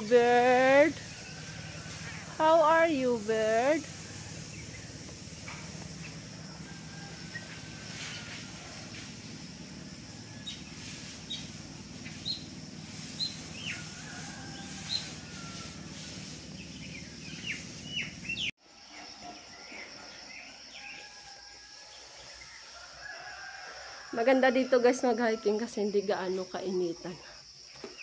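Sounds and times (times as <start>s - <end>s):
birds chirping: 0.0s - 8.3s, 9.1s - 15.6s, 16.2s - 18.5s.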